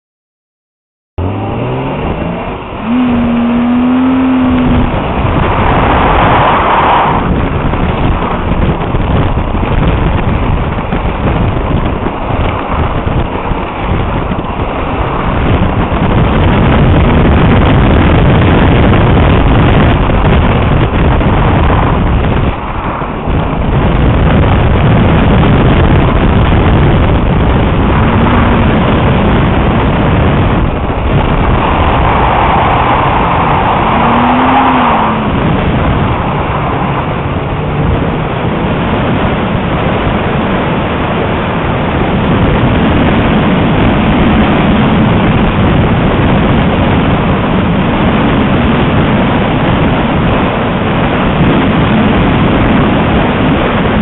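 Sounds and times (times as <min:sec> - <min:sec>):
car engine revving hard: 0:01.2 - 0:40.4
wind noise on microphone: 0:01.2 - 0:54.0.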